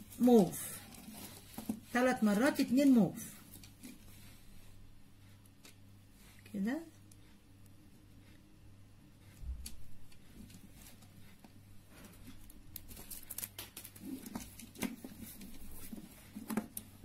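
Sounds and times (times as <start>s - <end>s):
soft handling rustle: 0.0s - 8.6s, 9.2s - 17.0s.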